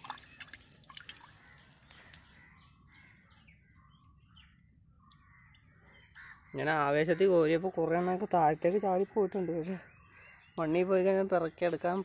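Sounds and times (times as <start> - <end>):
water dripping: 0.0 - 2.4, 4.0 - 5.7
crows cawing: 1.2 - 4.0, 5.1 - 10.6.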